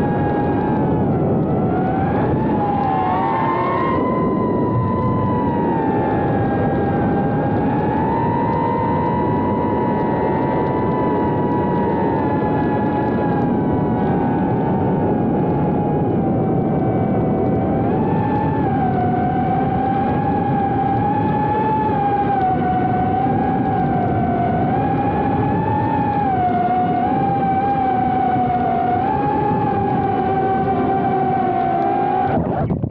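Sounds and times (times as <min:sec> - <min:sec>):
drone motors whining: 0:00.0 - 0:32.9.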